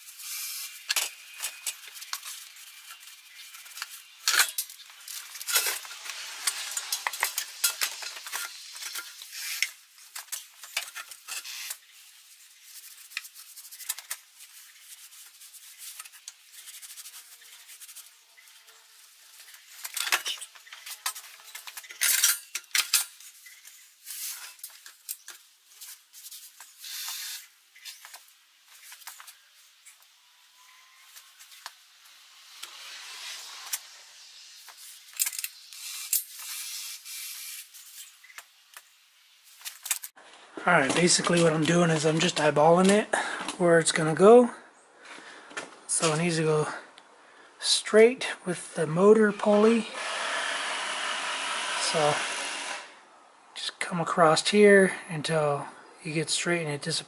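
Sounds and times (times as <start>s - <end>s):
cloth rag rubbing on metal: 0.0s - 4.2s, 8.0s - 20.0s.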